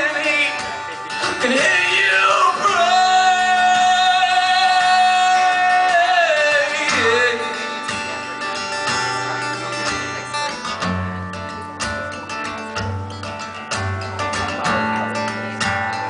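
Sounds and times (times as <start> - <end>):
man singing: 0.0 - 8.6
acoustic guitar strumming: 0.0 - 16.0.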